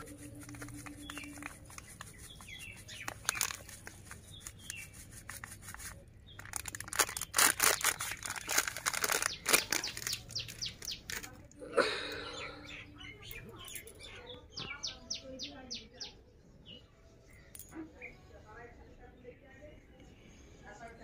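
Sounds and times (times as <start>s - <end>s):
plastic packet rustling: 0.0s - 11.4s
small birds chirping: 0.0s - 21.0s.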